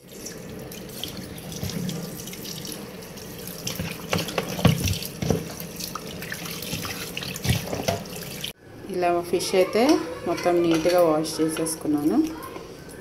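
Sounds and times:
tap water running into steel bowl: 0.0 - 8.5
splashes and knocks: 0.9 - 2.4, 3.6 - 8.5.

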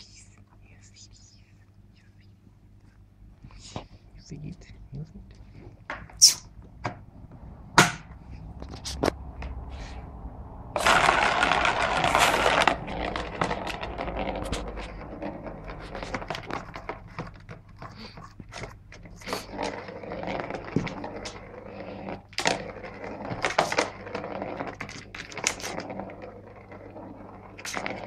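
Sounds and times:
ball rolling around plastic track: 5.9 - 28.0.

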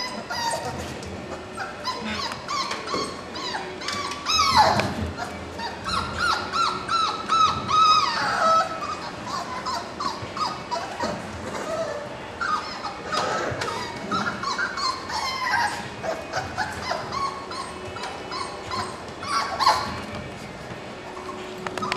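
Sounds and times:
puppies whining and yipping: 0.0 - 21.9.

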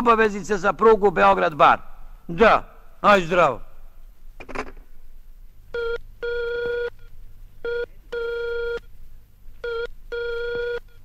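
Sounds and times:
telephone ringing tone: 9.6 - 11.0.

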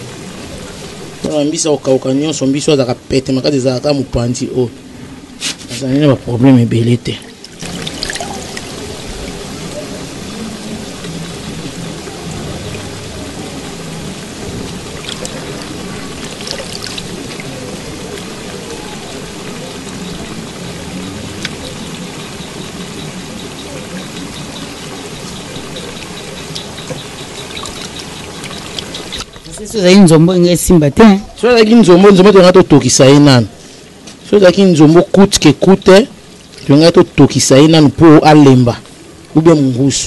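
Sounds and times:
water splashing in plastic basin: 7.3 - 9.4, 14.6 - 17.8, 26.0 - 29.8.

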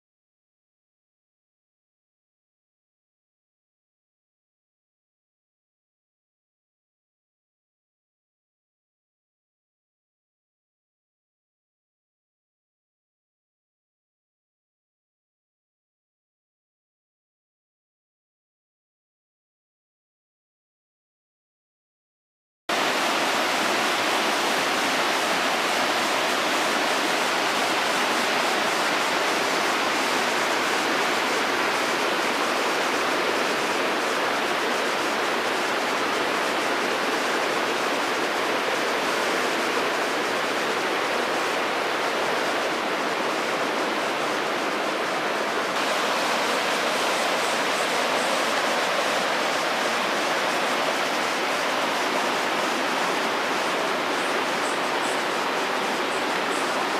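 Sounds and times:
river running over rocks: 22.7 - 56.9.

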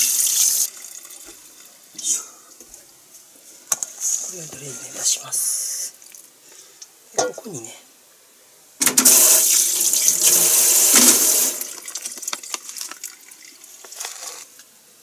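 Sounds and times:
water drips: 5.9 - 6.9, 11.6 - 14.0.

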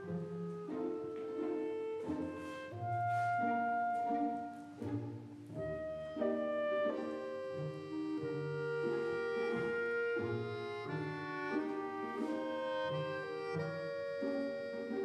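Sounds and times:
light instrumental music: 0.0 - 15.0.

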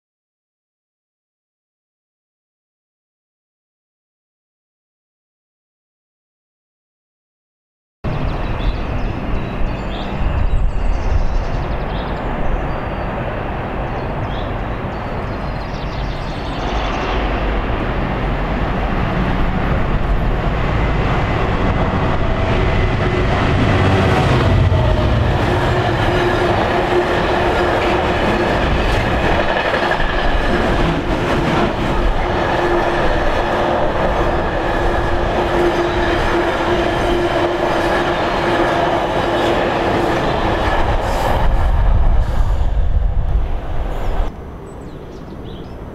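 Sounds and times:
locomotive engine rumble: 17.4 - 36.1.

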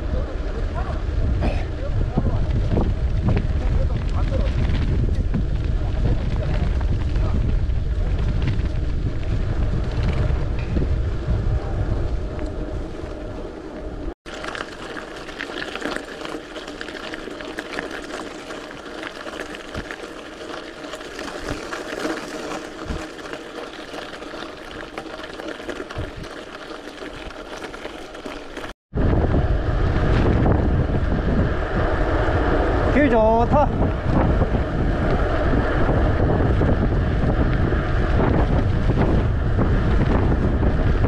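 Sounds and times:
bike rolling over brick pavers: 0.0 - 41.0
tyres crunching over gravel: 14.3 - 28.8.

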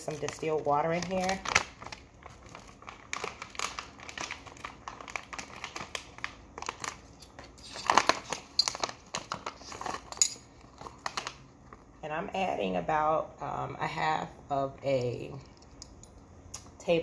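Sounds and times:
pouch crinkling: 0.1 - 11.9.

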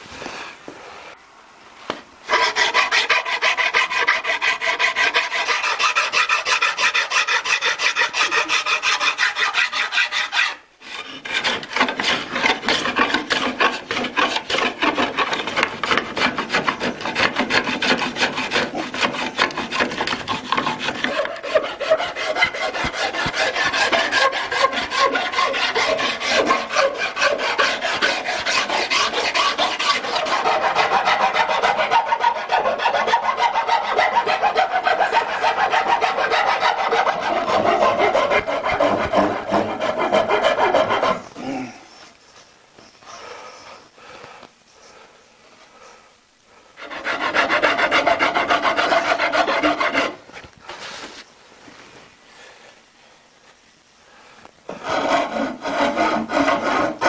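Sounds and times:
file scraping wood: 2.3 - 42.1, 46.8 - 51.3, 54.7 - 57.0.

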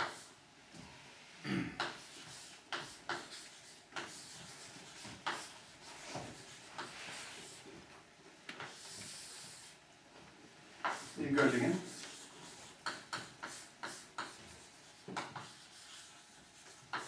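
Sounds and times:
chalk tapping on blackboard: 0.0 - 0.3, 1.8 - 7.5, 8.5 - 9.7, 10.8 - 17.0
chalk scraping on blackboard: 0.0 - 0.4, 1.8 - 7.6, 8.6 - 9.8, 10.8 - 17.0.

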